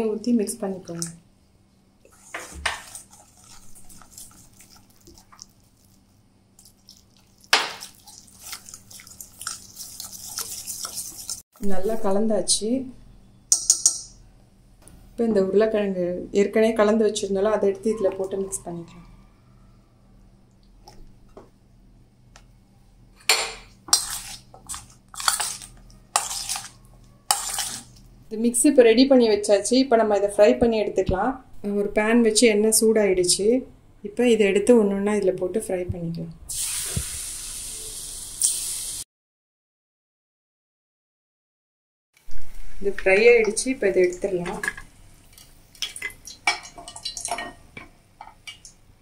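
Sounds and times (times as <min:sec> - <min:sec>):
whisk stirring batter in steel bowl: 0:02.1 - 0:06.0, 0:06.6 - 0:11.4, 0:23.9 - 0:28.0
water pouring: 0:06.6 - 0:11.4, 0:44.0 - 0:47.4.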